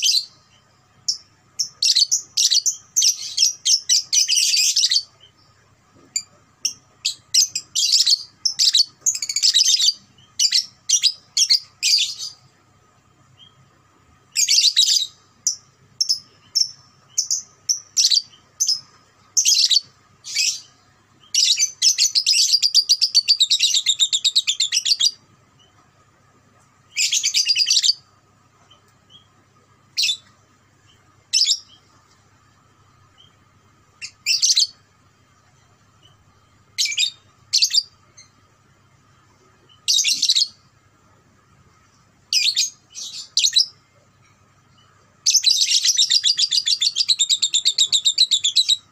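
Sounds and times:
lovebird chirping and trilling: 0:00.0 - 0:00.4, 0:01.0 - 0:05.5, 0:06.1 - 0:12.4, 0:14.3 - 0:25.8, 0:26.9 - 0:28.1, 0:29.9 - 0:31.9, 0:34.0 - 0:34.8, 0:36.8 - 0:38.4, 0:39.7 - 0:40.6, 0:42.3 - 0:43.8, 0:44.8 - 0:48.9.

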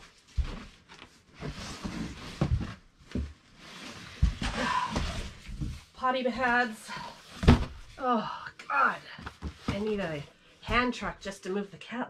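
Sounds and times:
cardboard rustling and scraping: 0:00.0 - 0:05.9
box knocks and thumps: 0:07.4 - 0:07.9.

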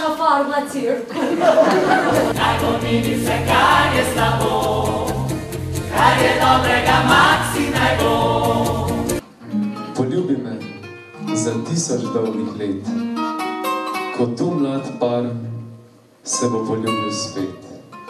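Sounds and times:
mixed choir singing: 0:01.6 - 0:09.2
strummed acoustic guitars: 0:02.1 - 0:10.0, 0:12.4 - 0:14.3.

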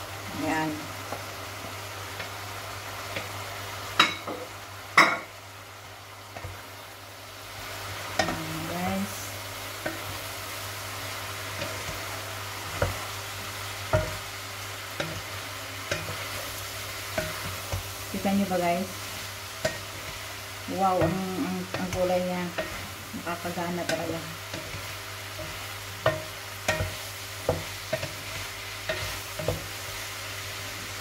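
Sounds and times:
food sizzling in frying pan: 0:00.0 - 0:31.0
spatula knocking on pan: 0:13.9 - 0:14.2, 0:25.4 - 0:28.2.

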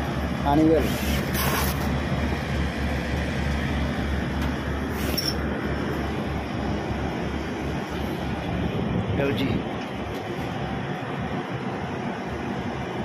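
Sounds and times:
air conditioning unit rumbling: 0:00.0 - 0:13.0
brief hissing: 0:00.8 - 0:01.9.

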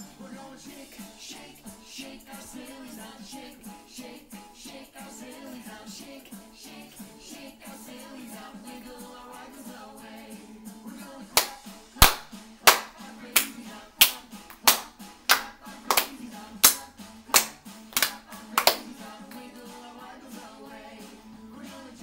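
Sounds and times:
children's sing-along music: 0:00.0 - 0:22.0
hand claps in steady beat: 0:11.3 - 0:19.6.

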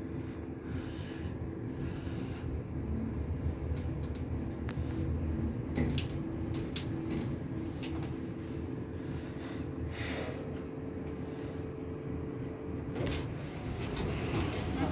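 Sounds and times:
faint drive hum: 0:00.0 - 0:14.9
lift car rumble: 0:10.5 - 0:14.9.

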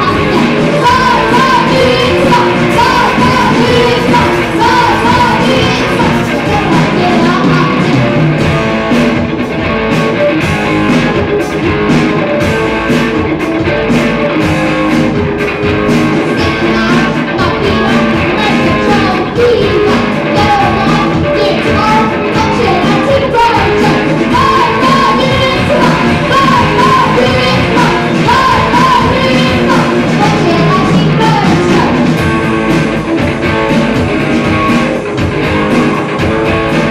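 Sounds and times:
person singing: 0:00.0 - 0:08.3, 0:16.3 - 0:32.2
bass guitar: 0:00.0 - 0:36.9
drum kit beat: 0:00.0 - 0:36.9
electric guitars: 0:00.0 - 0:36.9.

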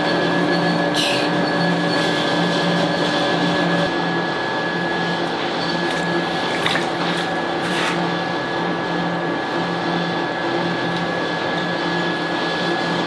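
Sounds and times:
wet clay being smoothed: 0:07.0 - 0:08.0.

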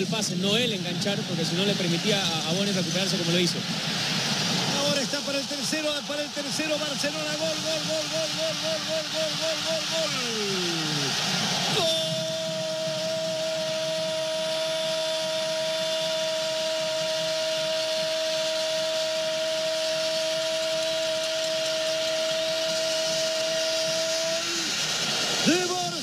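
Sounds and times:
stadium crowd noise: 0:00.0 - 0:26.0
commentator shouting goal: 0:04.8 - 0:11.1, 0:25.4 - 0:26.0.

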